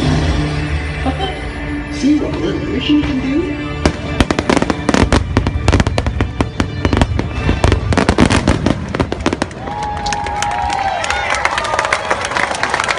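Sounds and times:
music playing: 0.0s - 9.8s
fireworks bangs and crackling: 3.8s - 10.6s.

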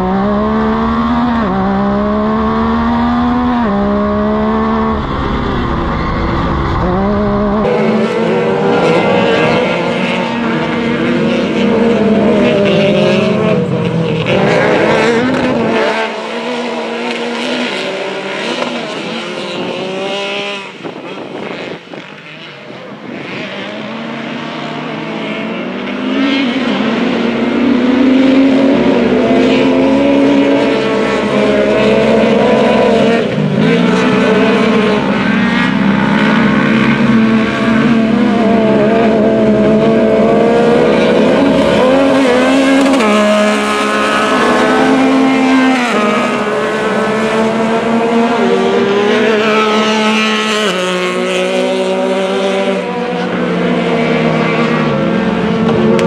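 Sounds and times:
race car engines revving: 0.0s - 56.0s.

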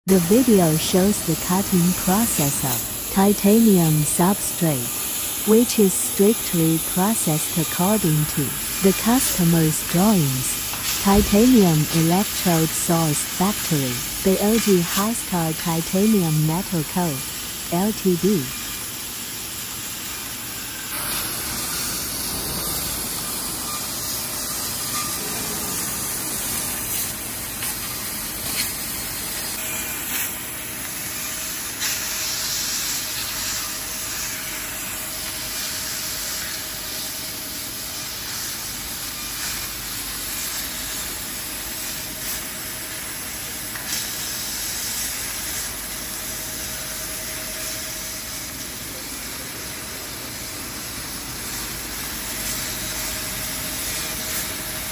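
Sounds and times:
gas jet hissing: 0.2s - 46.9s
faint machine tone: 20.6s - 27.0s.

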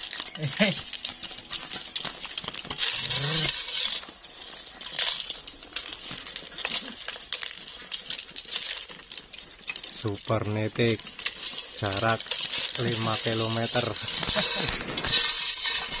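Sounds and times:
scuffling on straw: 0.0s - 8.0s.

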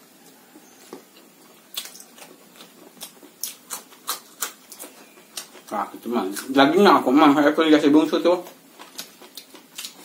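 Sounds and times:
crisp chewing crunches: 0.5s - 6.8s, 8.4s - 10.0s.

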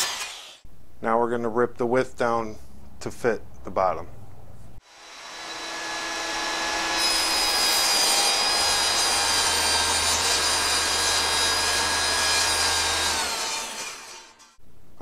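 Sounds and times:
saw blade cutting plywood: 0.0s - 0.6s, 4.8s - 14.6s
table saw motor whine: 0.0s - 0.6s, 4.8s - 14.6s.

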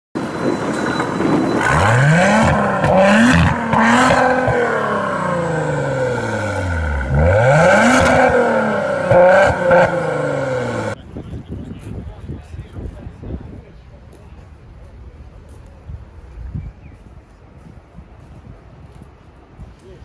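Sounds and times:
car engine revving: 1.6s - 11.0s.

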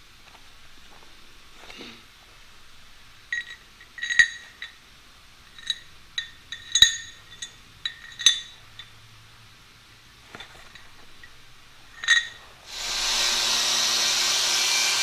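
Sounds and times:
metal bolts clinking: 3.3s - 4.8s, 5.5s - 9.0s, 10.3s - 12.6s.

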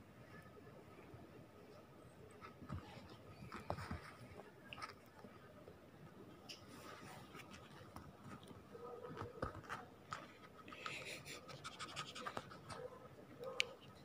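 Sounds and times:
puppy paws scratching on a bedsheet: 2.4s - 5.2s.

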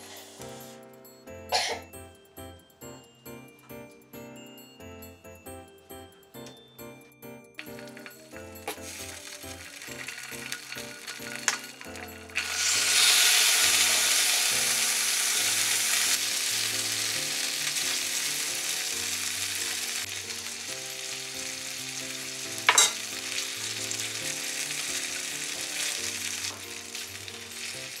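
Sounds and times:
chicken sizzling in frying pan: 7.6s - 28.0s
chopsticks tapping pan: 9.8s - 14.2s, 22.6s - 23.4s.

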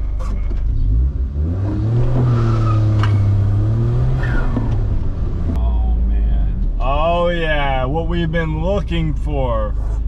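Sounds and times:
car engine revving: 0.6s - 8.4s.

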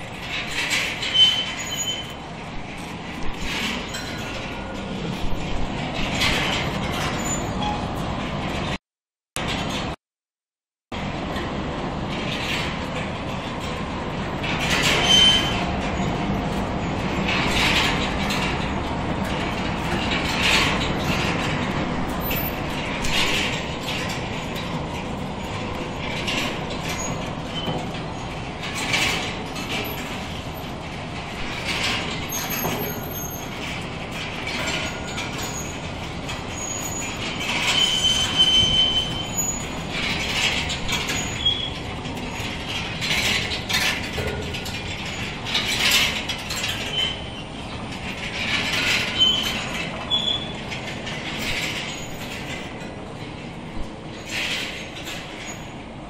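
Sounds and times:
chain and hooks clanking: 0.0s - 8.6s, 14.4s - 55.8s
chain conveyor rattling: 0.0s - 8.8s, 11.1s - 56.0s
brief squeals: 1.1s - 2.2s, 37.7s - 39.6s.

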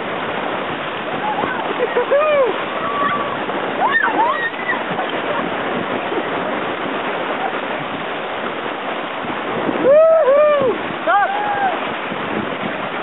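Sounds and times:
whitewater rapids rushing: 0.0s - 13.0s
person yelling: 9.8s - 11.8s.

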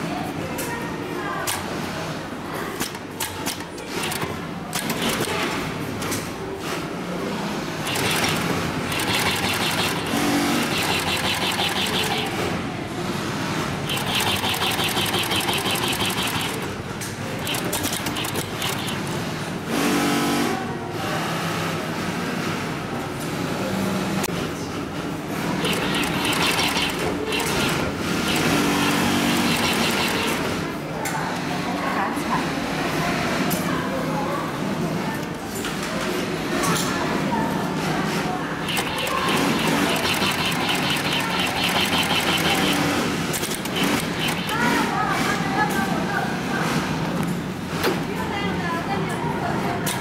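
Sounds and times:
sewing machine stitching: 7.8s - 12.6s, 13.6s - 20.0s, 25.5s - 30.6s, 38.6s - 44.9s.

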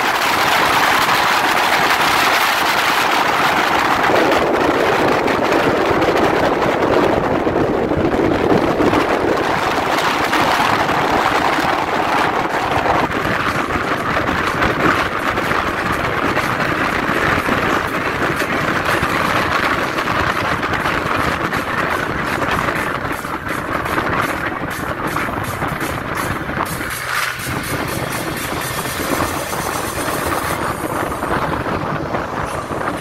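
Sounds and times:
car driving at speed: 0.0s - 33.0s.

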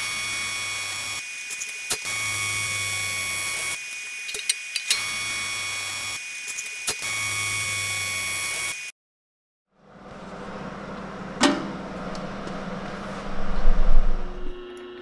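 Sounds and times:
welding arc buzzing: 0.0s - 8.9s.

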